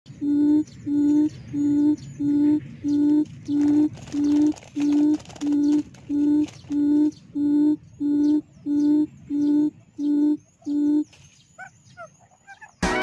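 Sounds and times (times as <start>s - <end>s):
quail call through loudspeaker: 0.6s - 13.0s.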